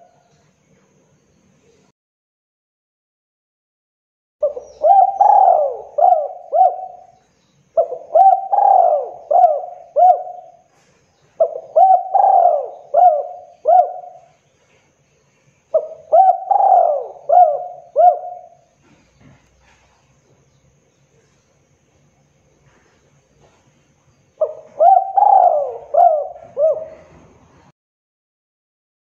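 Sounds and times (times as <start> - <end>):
dove cooing: 4.4 - 7.2, 7.8 - 14.4, 15.7 - 19.8, 24.4 - 27.7.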